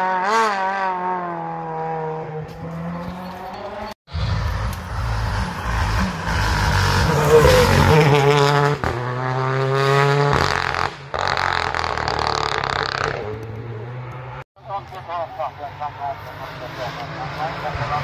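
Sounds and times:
rally car engine accelerating: 0.0s - 14.4s.

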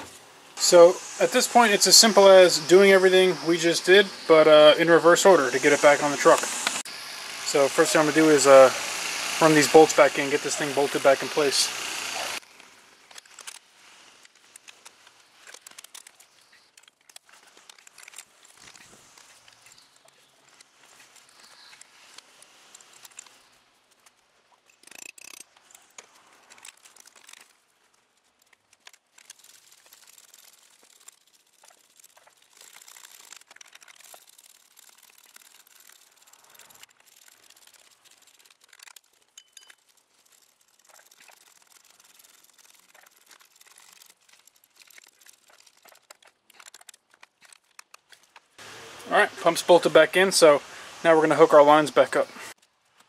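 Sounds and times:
ratchet wrench clicking: 24.7s - 27.5s, 28.8s - 47.9s.

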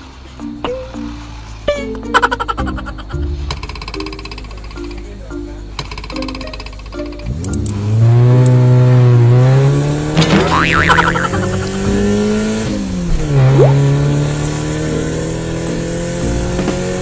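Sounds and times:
car engine revving: 7.2s - 17.0s
scratchy high-pitched sound: 10.3s - 12.3s.

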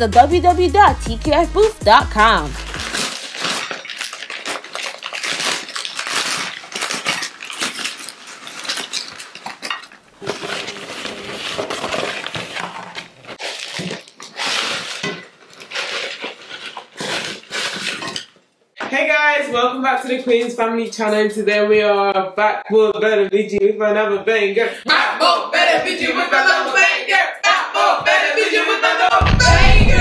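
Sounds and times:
paper bag rustling: 2.2s - 18.3s.

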